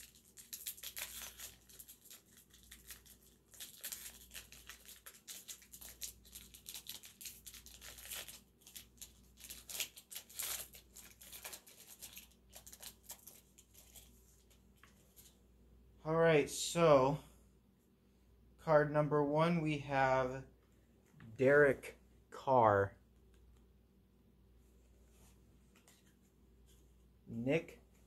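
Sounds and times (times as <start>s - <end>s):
wrapper tearing and crinkling: 0.0s - 14.1s.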